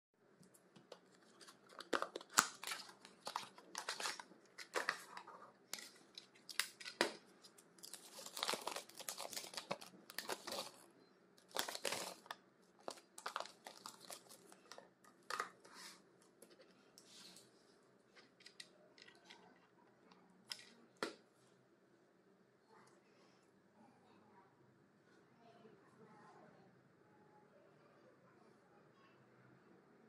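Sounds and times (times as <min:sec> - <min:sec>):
paper rustling and crinkling: 0:00.9 - 0:10.8, 0:11.4 - 0:17.5.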